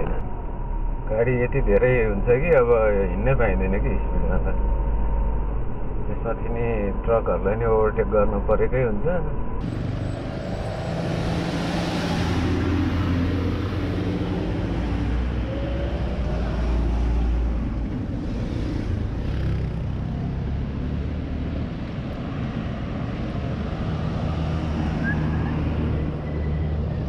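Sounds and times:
car engine and road rumble: 0:00.0 - 0:27.0.

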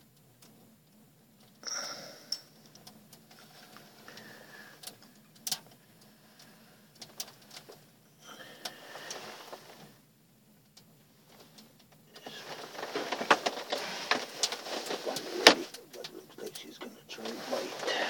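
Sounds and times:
short rustling: 0:11.2 - 0:18.0.

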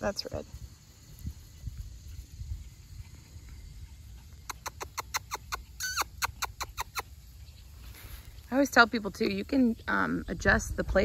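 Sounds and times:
puppy yipping: 0:04.4 - 0:07.1.

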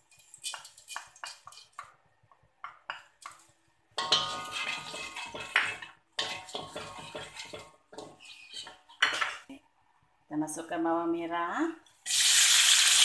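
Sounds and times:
wooden spatula scraping a wok: 0:00.0 - 0:02.0, 0:03.1 - 0:09.5
spoon scraping porcelain saucer: 0:04.0 - 0:09.4.

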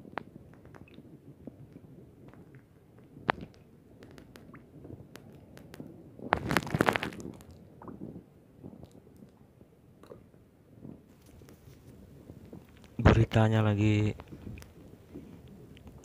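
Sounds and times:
underwater clicks and crackling: 0:00.0 - 0:09.4, 0:10.0 - 0:13.4, 0:14.0 - 0:16.0.

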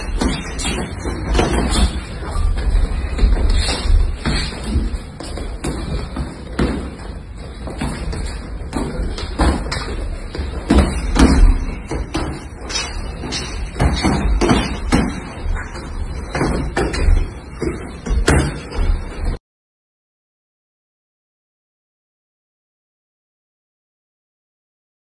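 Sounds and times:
punches thudding on padded mitts: 0:07.6 - 0:12.4, 0:13.7 - 0:15.3.

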